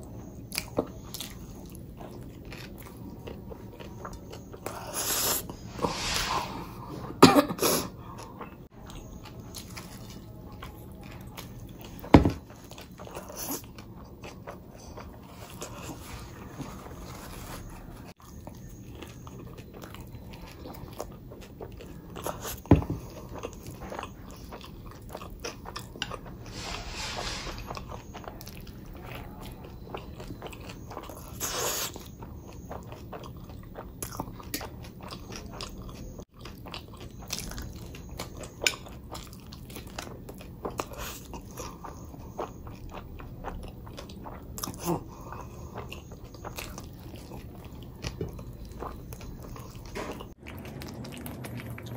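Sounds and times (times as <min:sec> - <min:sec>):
person chewing crunchy food: 0:00.5 - 0:06.2, 0:17.2 - 0:51.9.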